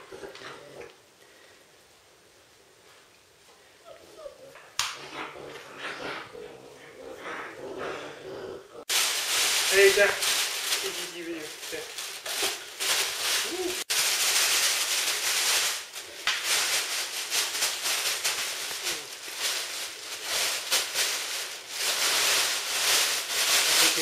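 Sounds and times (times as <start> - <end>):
plastic bags crinkling: 8.9 - 24.0.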